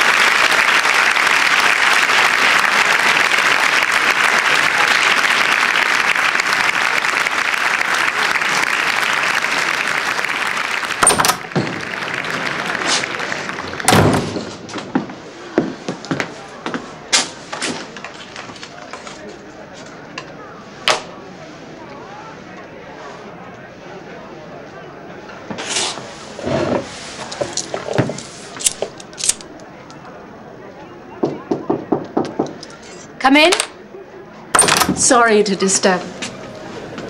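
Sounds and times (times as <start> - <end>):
audience applause: 0.0 - 15.0
door thump: 13.9 - 14.6
footsteps walking: 14.4 - 19.9
knock on door: 31.2 - 32.6.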